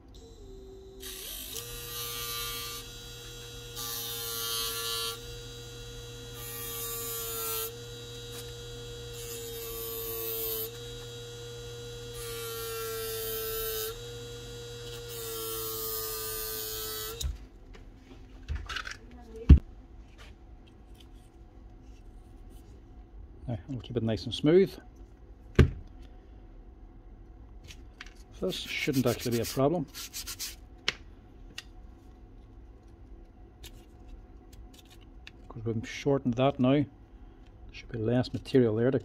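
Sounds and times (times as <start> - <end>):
electric drill motor hum: 0.1 - 17.4.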